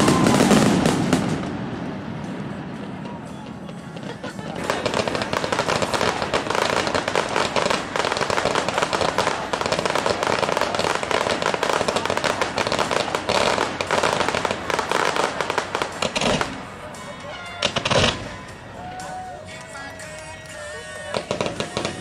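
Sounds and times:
fireworks bangs and crackles: 0.0s - 22.0s.

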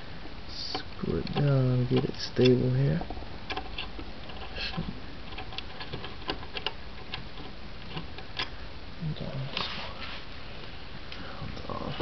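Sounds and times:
small clicks of nuts turning: 0.7s - 8.6s.

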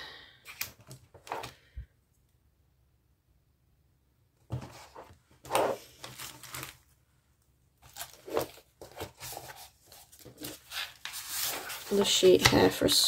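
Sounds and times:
markers rustling in pencil case: 4.7s - 6.8s, 7.8s - 13.0s
paper moving: 7.8s - 12.5s.

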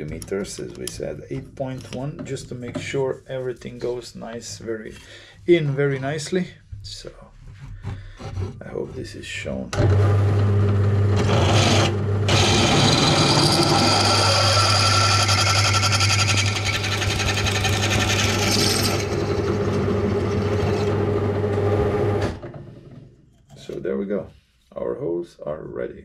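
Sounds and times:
drill press motor hum: 9.7s - 22.6s
drill bit cutting steel: 11.2s - 21.0s.

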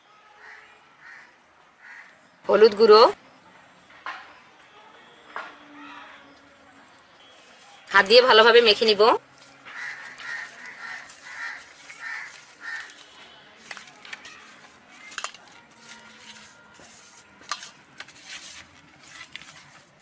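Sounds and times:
hands handling fish: 9.4s - 20.0s.

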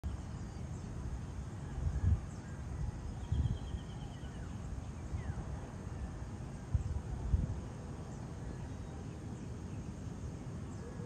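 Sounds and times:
wind buffeting microphone: 0.1s - 10.7s.

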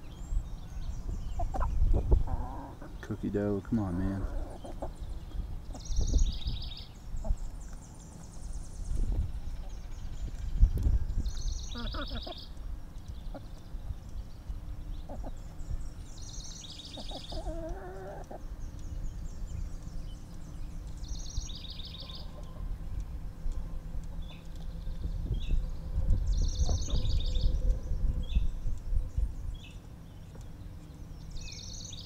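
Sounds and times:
small birds trilling: 0.0s - 32.0s
chickens clucking: 1.3s - 3.2s, 3.9s - 6.2s, 7.1s - 7.6s, 11.7s - 12.6s, 13.2s - 13.8s, 15.0s - 15.6s, 16.8s - 18.6s, 26.6s - 27.2s
low rumble: 22.4s - 29.7s.

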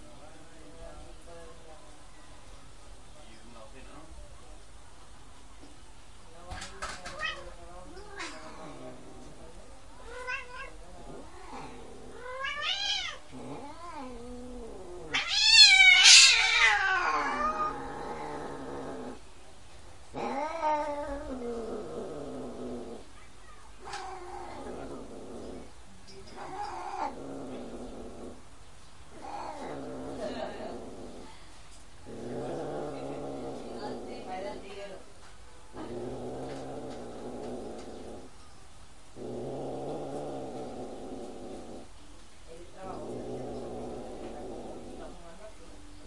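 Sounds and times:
cats yowling: 7.0s - 8.7s, 10.0s - 18.7s, 20.2s - 21.6s.

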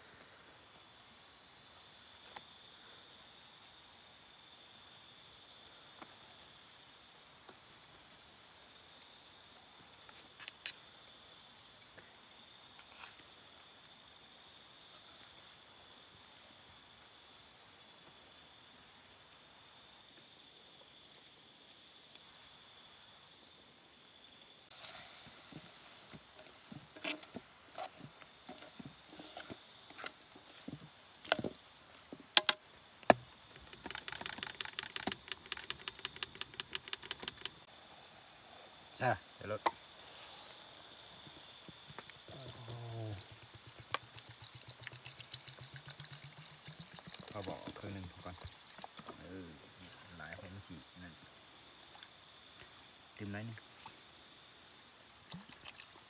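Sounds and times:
insects trilling: 0.0s - 56.0s
handling knocks and scrapes: 24.7s - 35.5s
fast clicks: 33.2s - 37.7s.

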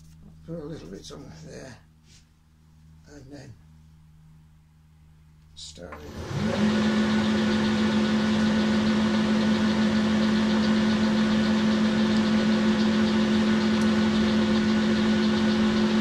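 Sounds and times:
lathe running hum: 5.9s - 16.0s.

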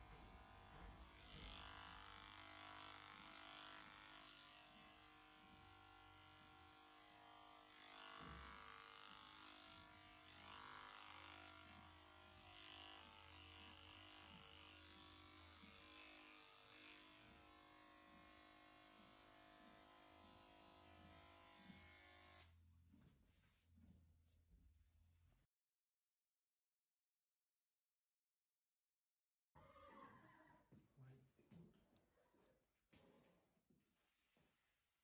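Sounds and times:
electric clippers buzzing: 0.0s - 22.6s.

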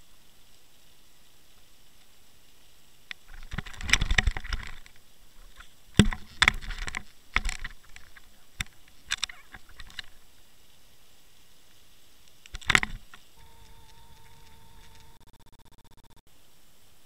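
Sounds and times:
underwater clicks and knocks: 6.0s - 10.1s, 12.5s - 13.2s.

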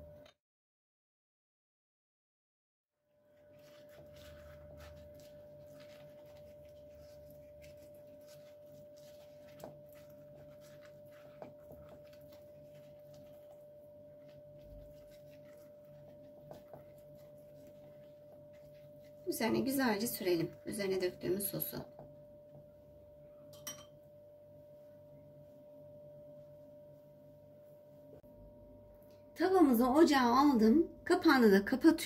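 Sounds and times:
pastry brush brushing and tapping: 3.3s - 20.8s.

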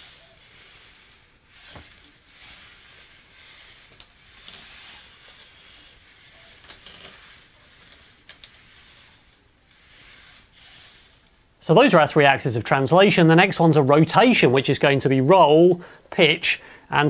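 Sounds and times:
servos whirring: 0.0s - 12.0s.

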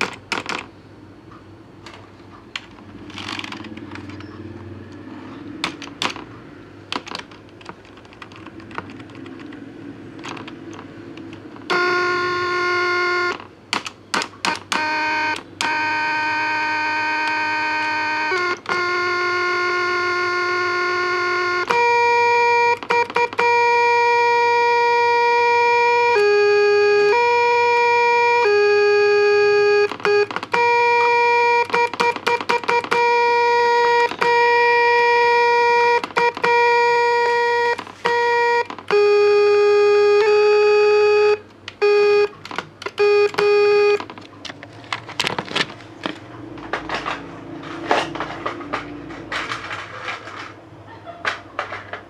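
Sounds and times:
keys clicking and rattling: 7.0s - 9.6s, 44.0s - 50.6s
buzzy electronic tones: 14.8s - 22.8s.

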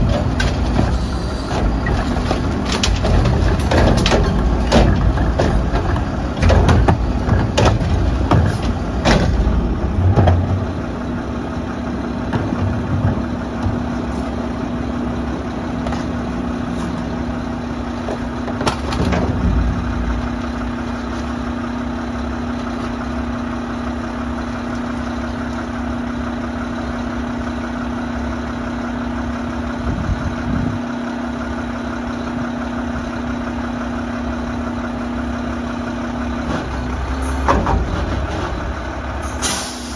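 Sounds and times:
metal clanks and bangs: 0.0s - 11.0s, 16.0s - 21.9s, 36.4s - 39.9s
garbage truck engine running: 0.0s - 39.9s.

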